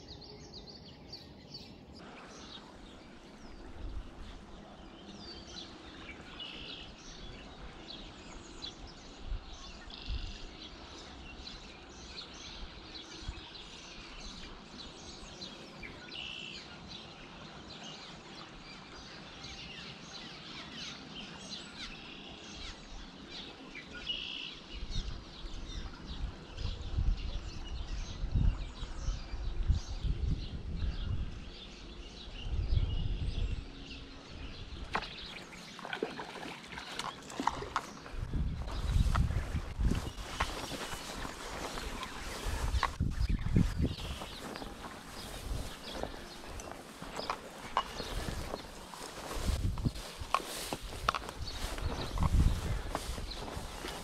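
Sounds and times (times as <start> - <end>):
songbirds chirping and singing: 0.0 - 54.0
wind buffeting microphone: 2.0 - 15.9, 24.7 - 54.0
creek water rushing: 35.1 - 38.3.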